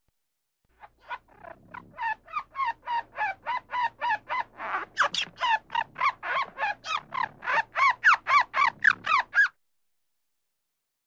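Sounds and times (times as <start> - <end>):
squirrel chucking calls: 0.8 - 9.5.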